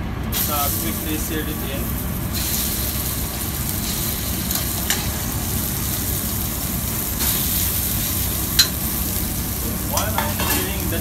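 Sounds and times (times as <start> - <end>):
chicken sizzling in hot oil: 0.3 - 11.0
tongs clicking against pan: 8.6 - 8.8, 9.9 - 10.8.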